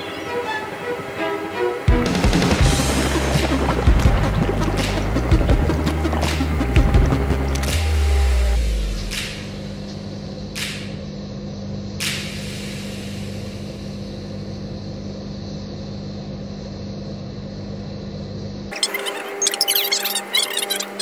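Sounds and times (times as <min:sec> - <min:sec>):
steady low hum: 0:00.0 - 0:19.4
even hiss: 0:12.0 - 0:15.0
short hissing bursts: 0:12.1 - 0:13.9.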